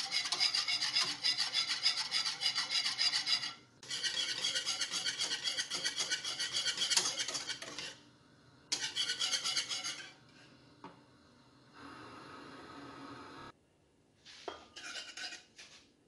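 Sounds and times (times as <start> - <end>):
whisk scraping saucepan: 0.0 - 8.0, 8.7 - 10.5, 14.5 - 15.8.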